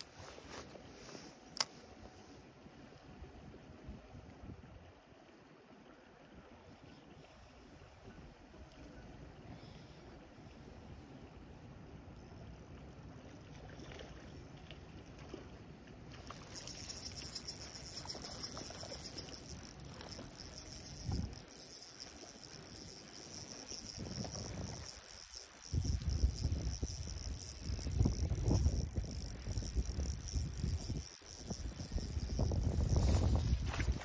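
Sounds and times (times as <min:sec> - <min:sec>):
fishing reel whirring: 0:01.4 - 0:01.7, 0:16.2 - 0:34.0
high whir: 0:16.2 - 0:34.0
wind rumbling on microphone: 0:16.3 - 0:34.0.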